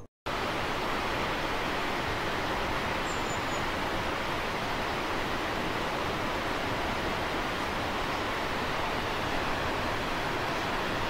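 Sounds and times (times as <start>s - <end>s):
waterfall rushing into pool: 0.3s - 11.0s.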